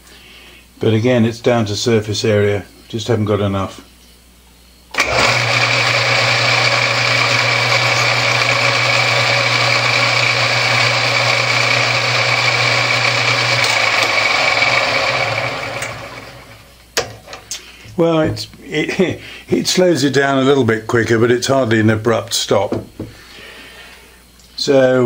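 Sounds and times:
lathe chuck running down: 0:04.9 - 0:16.7
metal lathe motor whining: 0:04.9 - 0:16.7.

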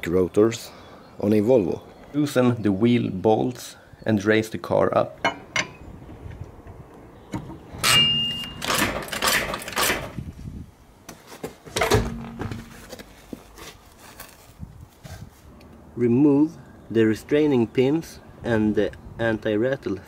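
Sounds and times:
lug wrench on wheel bolts: 0:05.2 - 0:05.9, 0:06.6 - 0:10.2
hydraulic floor jack raising car: 0:07.3 - 0:10.2.

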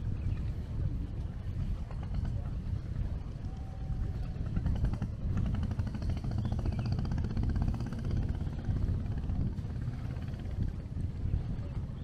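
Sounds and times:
wind on microphone: 0:00.0 - 0:12.0
small engine running: 0:04.1 - 0:10.8.

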